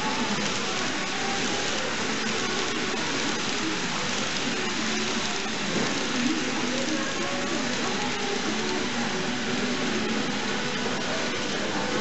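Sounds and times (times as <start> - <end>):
model train wheels on rail: 0.0 - 12.0.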